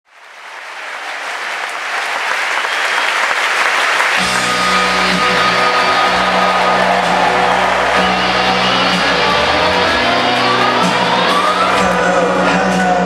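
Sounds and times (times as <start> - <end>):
crowd applauding and cheering: 0.1 - 13.0
band playing held chords: 4.1 - 13.0.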